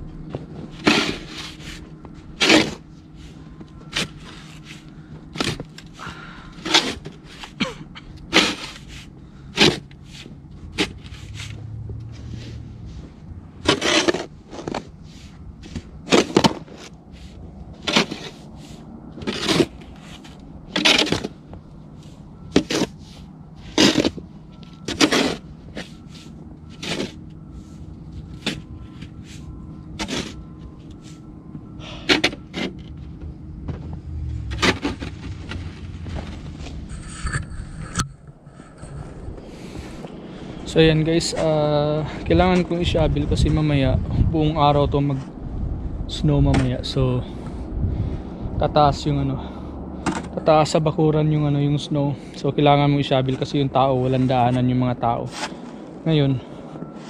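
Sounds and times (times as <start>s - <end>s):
snow shovel scraping: 0.7s - 3.3s, 6.6s - 12.7s, 13.6s - 21.3s, 22.5s - 24.2s, 24.9s - 27.2s, 29.2s - 30.4s.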